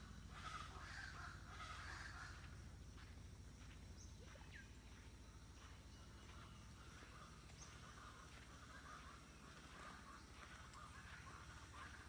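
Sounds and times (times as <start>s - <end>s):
distant bird calls: 0.0s - 12.0s
high insect whine: 0.0s - 12.0s.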